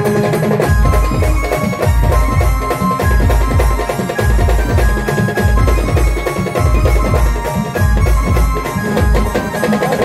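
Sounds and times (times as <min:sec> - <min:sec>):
heavy bass drum beat: 0:00.6 - 0:10.0.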